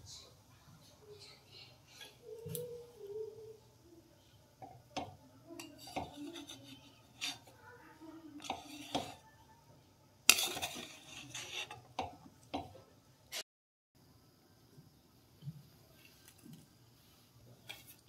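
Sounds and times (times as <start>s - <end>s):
utensils clinking on steel pot: 5.0s - 7.5s, 8.4s - 9.2s, 10.3s - 12.7s.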